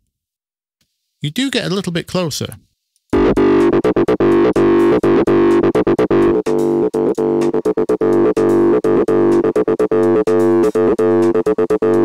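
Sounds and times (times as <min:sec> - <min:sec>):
synth acid bassline: 0:03.2 - 0:12.0.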